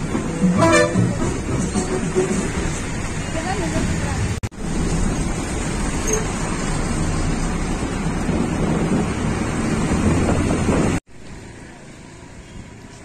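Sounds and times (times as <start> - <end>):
wind buffeting microphone: 7.7 - 11.0.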